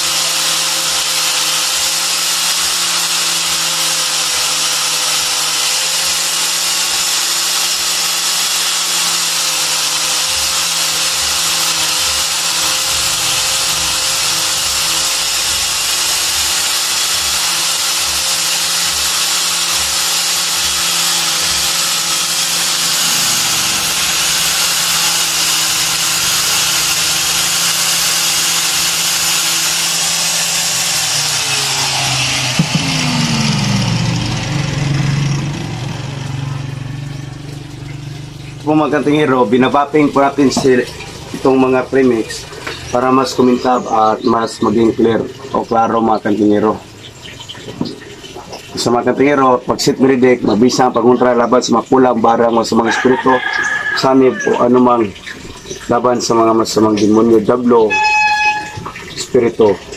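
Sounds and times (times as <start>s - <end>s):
grinder motor spinning down: 0.0s - 46.0s, 52.4s - 59.9s
angle grinder polishing: 0.0s - 59.9s
grinder knocking when set down: 10.2s - 33.5s.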